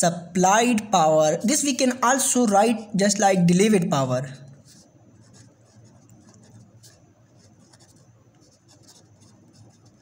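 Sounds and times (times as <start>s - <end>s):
pen scratching on paper: 4.6s - 10.0s.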